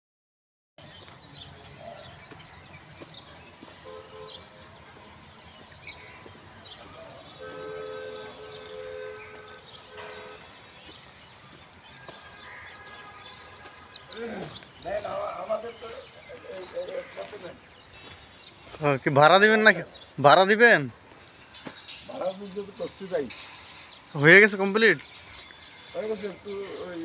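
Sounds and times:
horn blasts: 3.8s - 4.7s, 6.8s - 10.7s, 12.1s - 14.6s.

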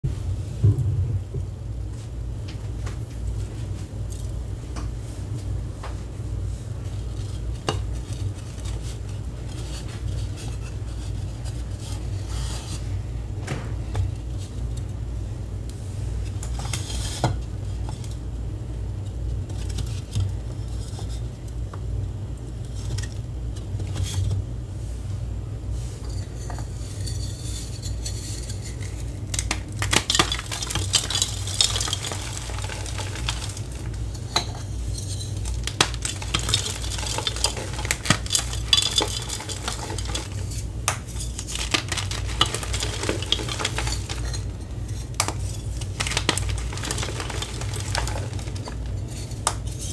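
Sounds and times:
low steady hum: 0.0s - 49.9s
chalk blocks crunching in hands: 28.7s - 34.0s, 35.3s - 49.9s.

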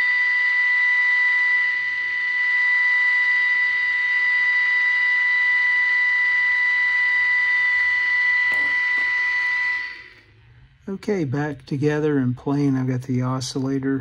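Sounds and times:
radio test tone: 3.3s - 10.3s.

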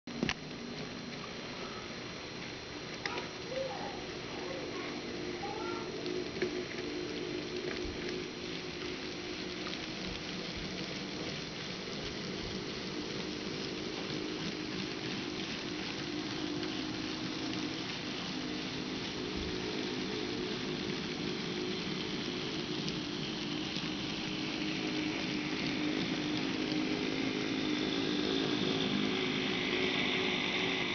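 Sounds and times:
wheels clicking on rails: 0.1s - 30.9s
model train motor hum: 0.2s - 30.9s.

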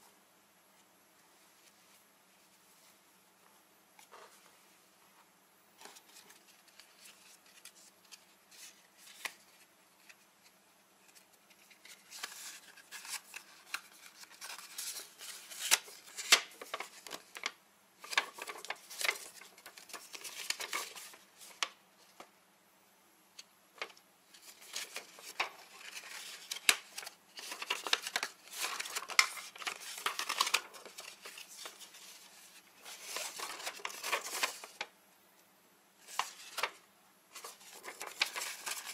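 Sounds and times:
paper rustling and crinkling: 5.8s - 22.3s, 23.7s - 34.9s, 36.0s - 38.9s.

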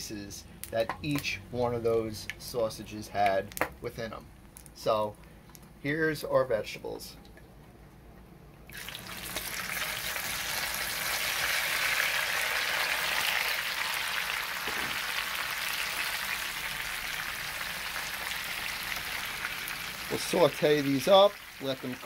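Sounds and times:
vegetables sizzling in hot oil: 8.7s - 22.0s.

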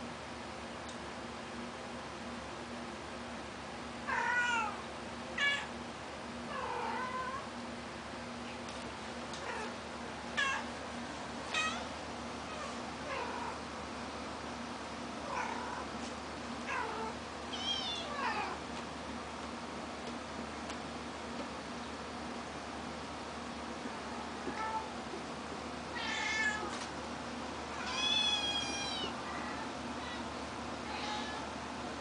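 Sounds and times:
cat meowing: 4.1s - 4.8s, 11.5s - 11.9s, 16.7s - 18.6s, 26.0s - 26.8s, 27.8s - 30.3s, 30.9s - 31.5s.

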